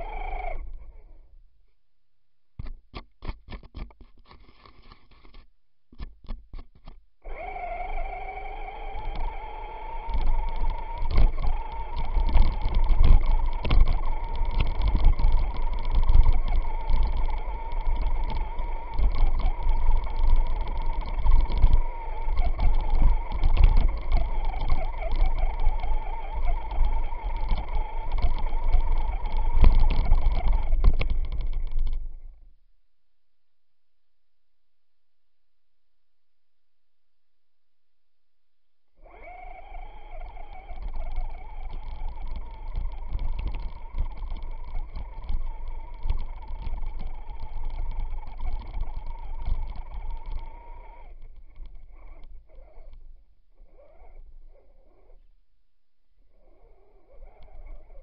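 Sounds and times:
electric motor and gears whining: 0:00.0 - 0:01.4, 0:06.8 - 0:32.4, 0:39.0 - 0:55.2, 0:56.3 - 0:58.0.

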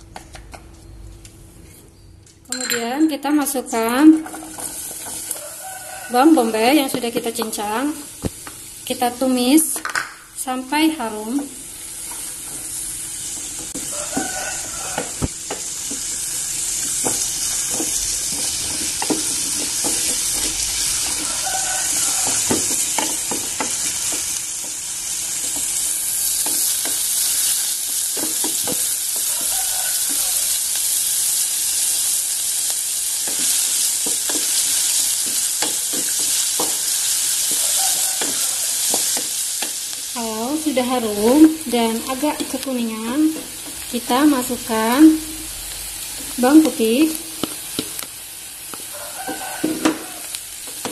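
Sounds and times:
onion sizzling in a pot: 0:02.5 - 0:50.9
wooden spatula scraping and knocking pot: 0:16.8 - 0:30.2.

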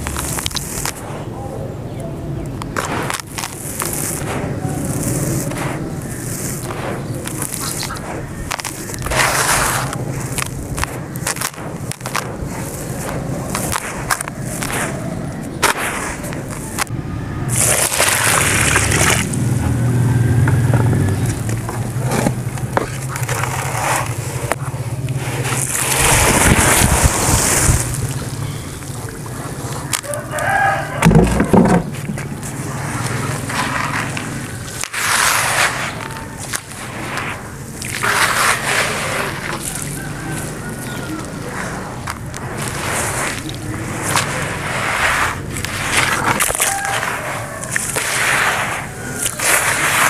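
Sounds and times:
sand falling into muddy water: 0:00.0 - 0:01.2, 0:02.6 - 0:16.9, 0:17.5 - 0:19.4, 0:23.2 - 0:31.4, 0:32.2 - 0:50.0
sand pouring into a tub: 0:02.8 - 0:07.9, 0:08.5 - 0:14.9, 0:17.5 - 0:19.4, 0:25.2 - 0:28.2, 0:32.7 - 0:40.6, 0:41.5 - 0:50.0
rooster crowing: 0:19.7 - 0:21.2, 0:30.0 - 0:31.6, 0:39.6 - 0:41.6, 0:46.5 - 0:47.8.

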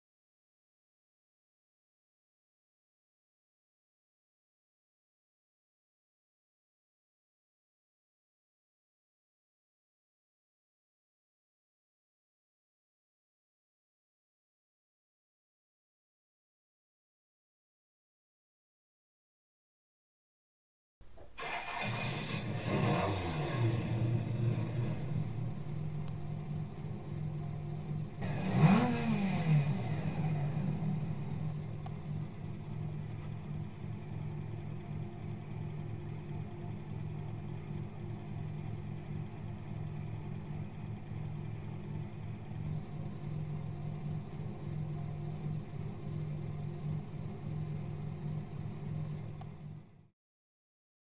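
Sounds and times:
car engine idling and revving: 0:21.2 - 0:50.1.

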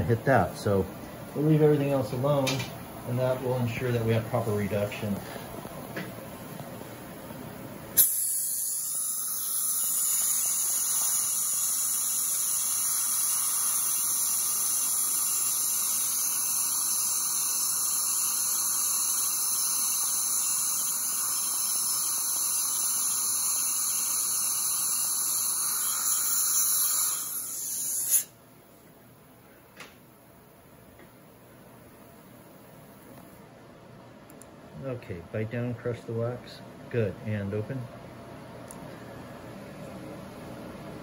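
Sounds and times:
dental drill grinding tooth: 0:08.0 - 0:28.3.

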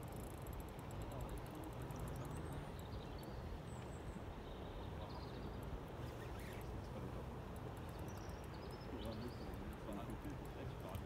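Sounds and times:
river water: 0:00.0 - 0:11.0
faint bird chirps: 0:01.9 - 0:06.9.

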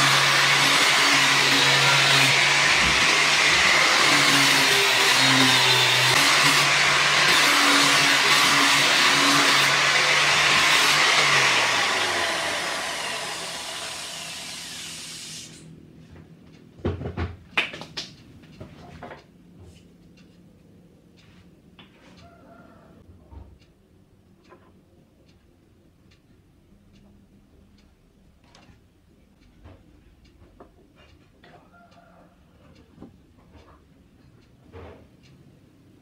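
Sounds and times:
angle grinder sanding bamboo: 0:00.0 - 0:15.7.

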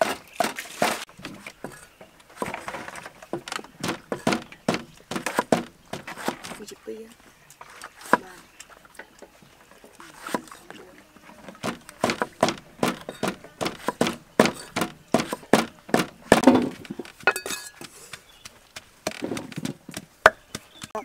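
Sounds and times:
dull rough thuds: 0:00.0 - 0:06.6, 0:11.5 - 0:21.0
cleaver chopping on wooden block: 0:03.4 - 0:06.6, 0:11.6 - 0:21.0.

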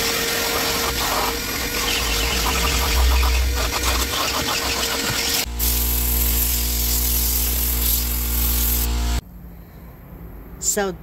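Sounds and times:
vacuum motor hum: 0:00.0 - 0:06.9
air gun hissing and rattling: 0:00.5 - 0:09.0.

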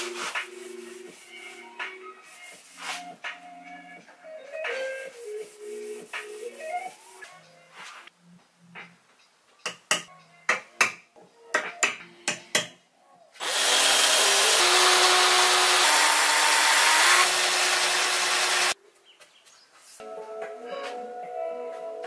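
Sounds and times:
cordless drill boring into wood: 0:13.4 - 0:18.8.

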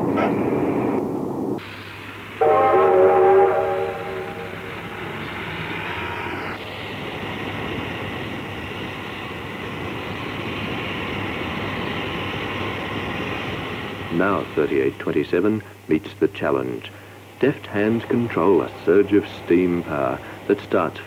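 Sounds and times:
rush of steam: 0:00.0 - 0:21.0
steam locomotive whistle: 0:02.4 - 0:06.6.

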